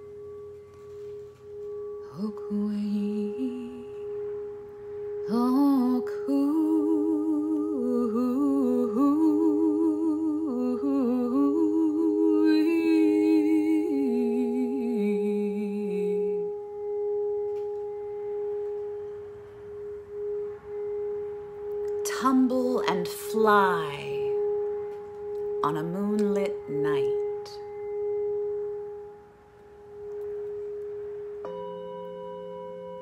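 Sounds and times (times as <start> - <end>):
singing bowl ringing: 0.0 - 33.0
woman singing wordlessly: 2.0 - 4.2, 5.3 - 16.6, 22.0 - 24.5, 25.5 - 27.8.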